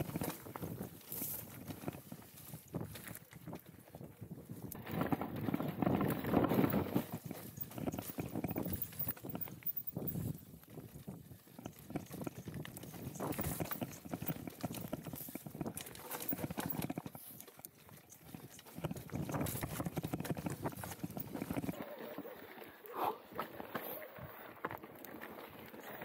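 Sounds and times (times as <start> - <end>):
bike tyres clattering over stones: 4.8 - 21.8.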